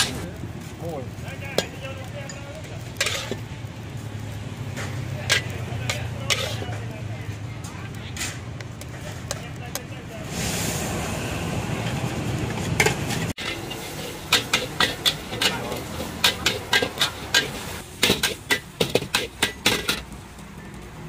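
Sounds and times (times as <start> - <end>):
metal spatula clanking on wok: 3.0 - 3.4, 4.7 - 6.8, 12.6 - 20.0.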